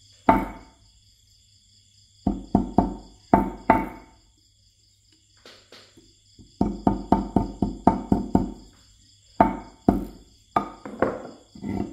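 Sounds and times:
hammer knocking on wire: 0.3s - 0.6s, 2.3s - 4.1s, 6.5s - 8.6s, 9.4s - 11.4s.

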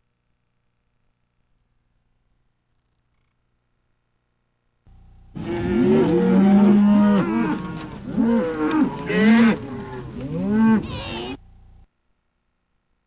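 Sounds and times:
cows mooing: 5.3s - 11.4s.

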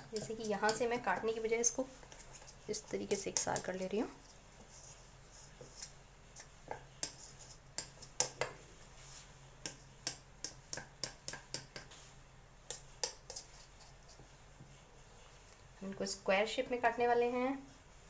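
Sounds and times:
taps on steel plate: 9.6s - 11.9s.

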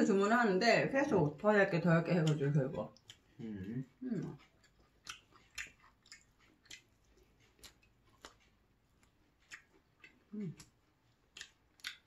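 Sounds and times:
mouth clicks of people chewing: 2.0s - 12.0s
low hum of voice: 3.4s - 4.4s.

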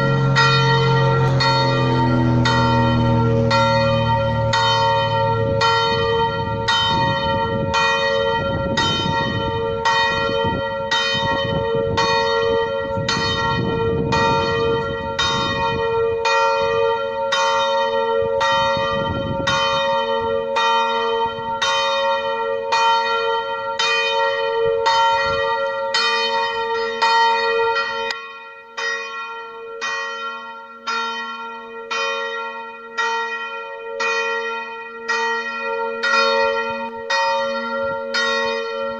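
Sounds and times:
low rumble: 0.0s - 10.0s
church bell tolling: 0.0s - 38.9s.

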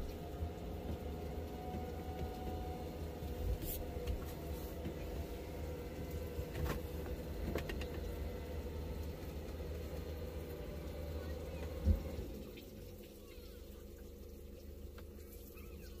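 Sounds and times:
engine running at low revs: 0.0s - 13.1s.

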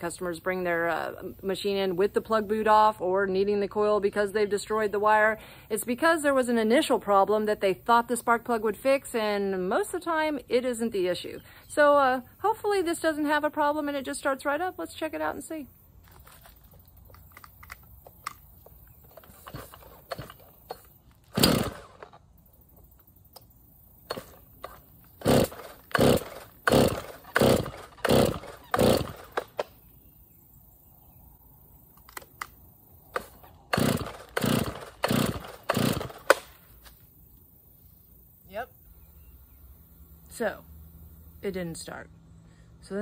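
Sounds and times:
recoil starter cord ripping: 19.0s - 22.2s, 24.1s - 29.7s, 33.1s - 37.0s
chainsaw engine turning over: 19.0s - 22.3s, 24.0s - 29.7s, 33.1s - 36.6s.

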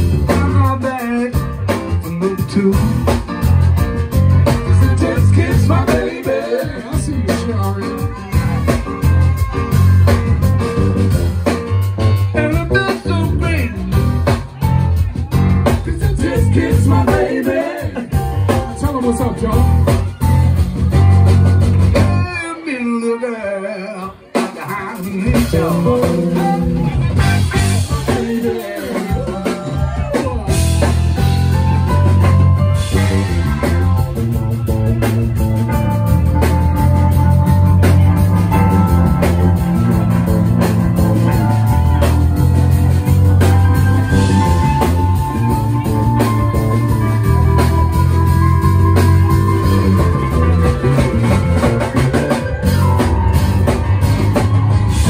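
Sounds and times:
electric bass line: 0.0s - 22.5s, 25.0s - 55.0s
drum kit: 0.0s - 22.6s, 24.0s - 55.0s
keyboard: 0.0s - 55.0s
saxophone: 29.0s - 55.0s.

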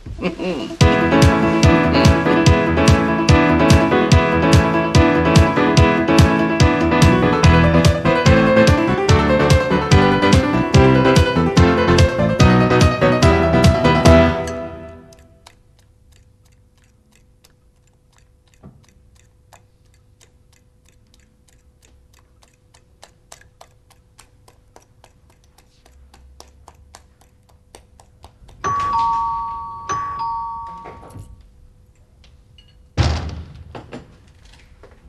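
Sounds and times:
faint ticking: 15.1s - 28.8s
two-tone doorbell chime: 28.6s - 31.4s
loud thump: 33.0s - 34.2s.

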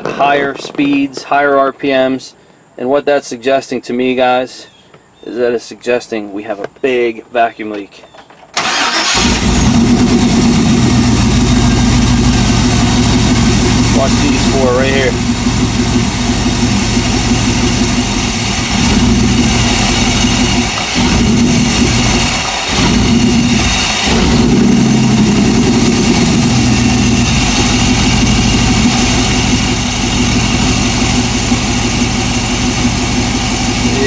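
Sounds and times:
car engine revving unevenly: 8.7s - 34.0s.

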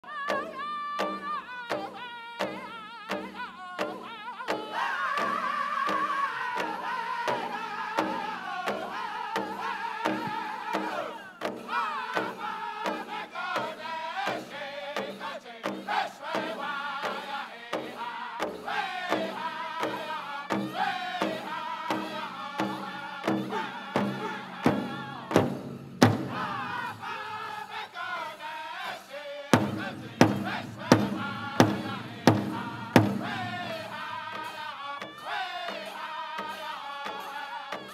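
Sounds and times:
group singing in high voices: 0.0s - 37.9s
big drum beating: 22.6s - 27.4s, 29.6s - 34.5s.

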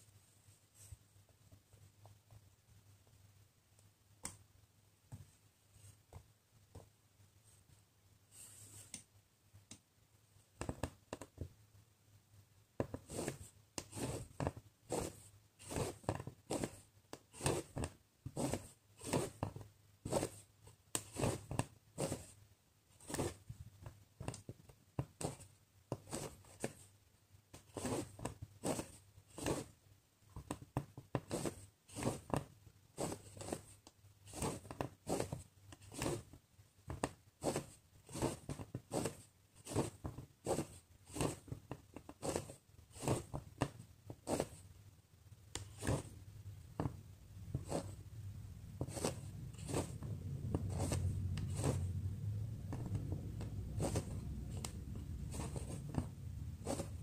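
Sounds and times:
thread pulled through cloth: 48.8s - 52.0s, 52.6s - 57.0s.

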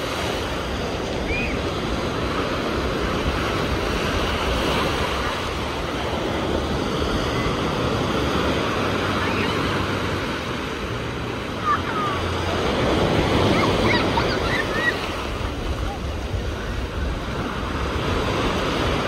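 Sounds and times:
ocean surf breaking: 0.0s - 19.0s.

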